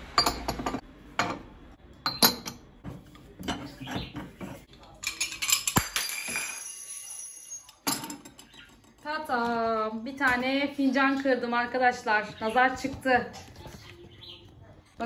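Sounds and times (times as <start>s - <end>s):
cup breaking and shards clattering: 5.0s - 8.9s
high tinkling of pieces: 5.1s - 7.9s.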